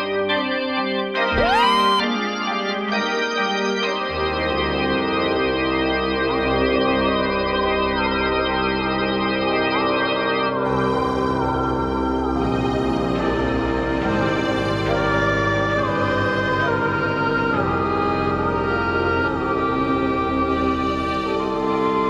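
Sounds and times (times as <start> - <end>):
electronic keyboard organ chords: 0.0 - 22.0
short sliding notes: 1.3 - 2.1.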